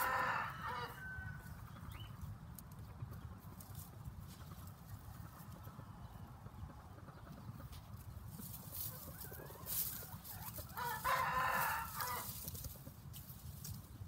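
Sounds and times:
rooster crowing: 0.0s - 1.5s, 10.7s - 12.3s.

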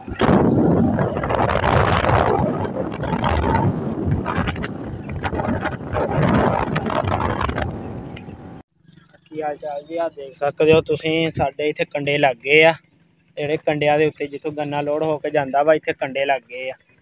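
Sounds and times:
wind buffeting microphone: 0.0s - 8.6s
vehicle running noise: 0.0s - 17.0s.

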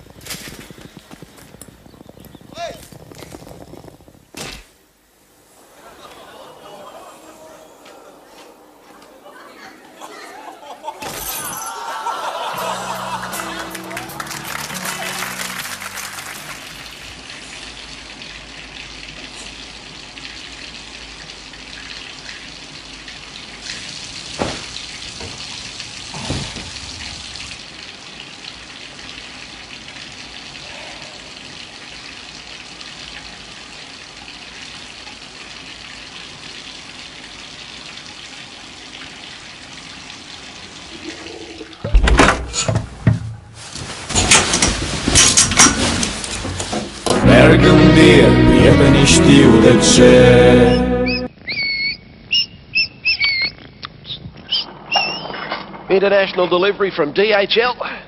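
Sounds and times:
water running: 5.6s - 42.0s.

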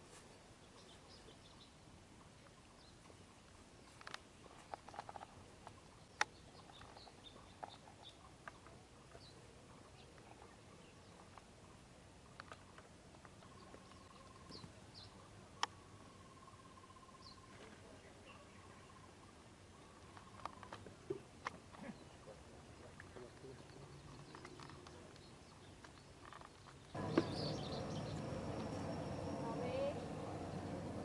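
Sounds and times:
faint high bird chirps: 13.4s - 20.8s, 26.8s - 30.8s.

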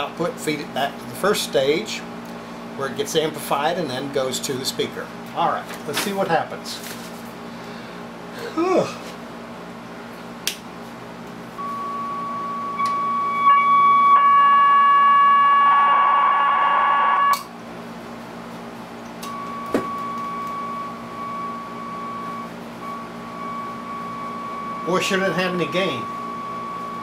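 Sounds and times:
radio loudspeaker high whistle: 11.6s - 17.5s.

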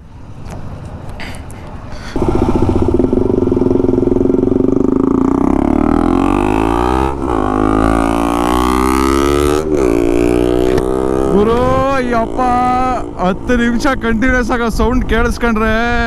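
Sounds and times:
motorcycle engine accelerating: 2.0s - 14.6s.

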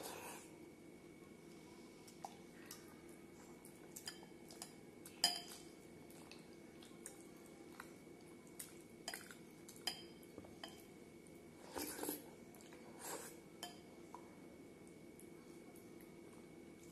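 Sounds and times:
fingers clinking against glass bowl: 4.0s - 5.7s, 9.1s - 10.8s.

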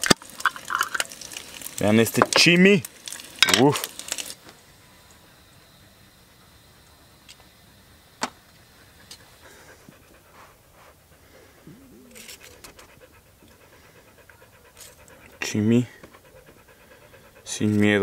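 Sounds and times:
dog panting: 8.6s - 18.0s
dog whining: 11.1s - 13.6s.

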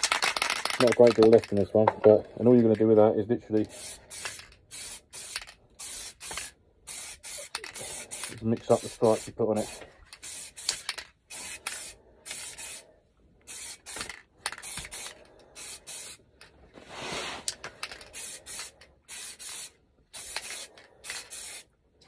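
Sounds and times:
spray paint can hissing: 3.6s - 12.8s, 13.4s - 16.2s, 17.0s - 21.7s.

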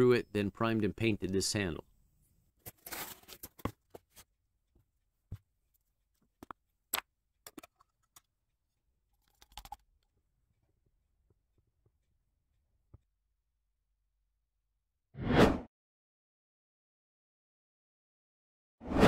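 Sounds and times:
paint jars clicking and knocking: 6.2s - 12.0s.

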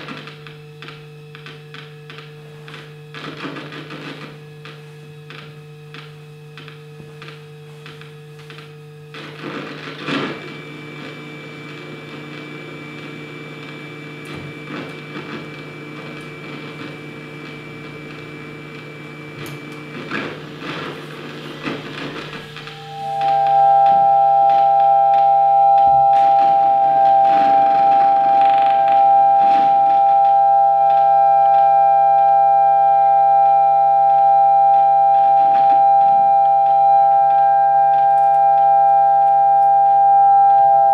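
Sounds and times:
scattered clicks and scratches: 0.0s - 32.3s
steady low hum: 0.0s - 40.9s
sustained high tones: 10.4s - 40.9s
experimental electroacoustic music: 13.6s - 40.9s.

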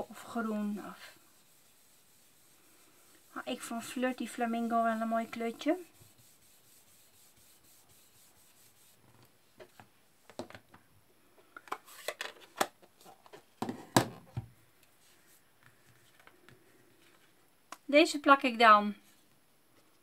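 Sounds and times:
brush rubbing on cardstock: 0.0s - 9.0s.

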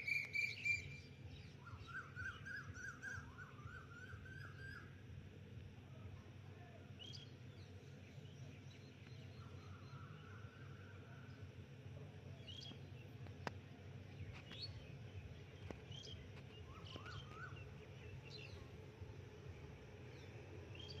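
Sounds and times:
small birds chirping: 0.0s - 5.8s, 6.6s - 21.0s
low background hum: 0.0s - 21.0s.

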